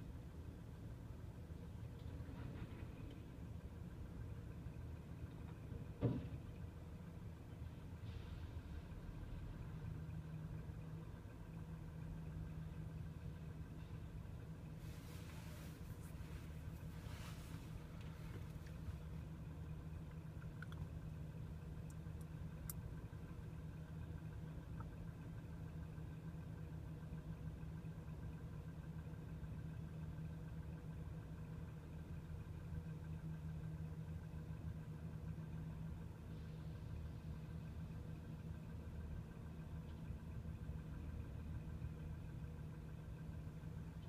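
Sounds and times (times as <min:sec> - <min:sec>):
crane diesel engine drone: 0:00.0 - 0:44.0.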